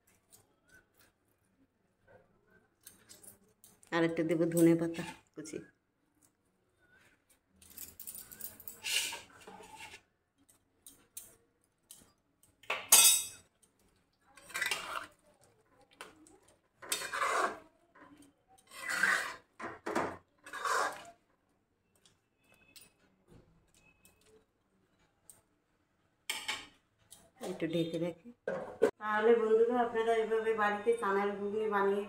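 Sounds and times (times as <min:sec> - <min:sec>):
metal spatula scraping pan: 0:08.8 - 0:10.0, 0:14.4 - 0:15.2, 0:16.8 - 0:17.6, 0:18.6 - 0:21.2.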